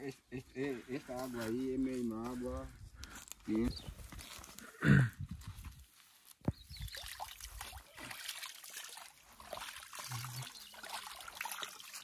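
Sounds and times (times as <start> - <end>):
water trickling and splashing: 5.8 - 12.0.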